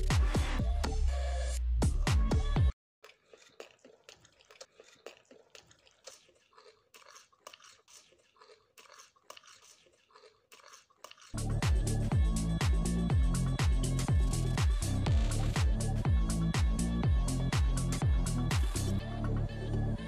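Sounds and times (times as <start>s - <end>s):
crunching and chewing: 3.0s - 11.4s
electronic music: 11.4s - 20.0s.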